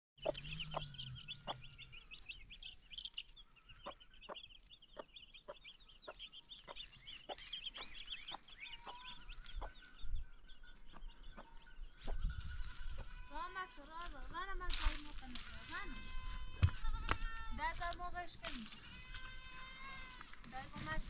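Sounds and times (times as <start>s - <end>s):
chick peeping: 0.2s - 13.2s
hen clucking: 0.2s - 17.2s.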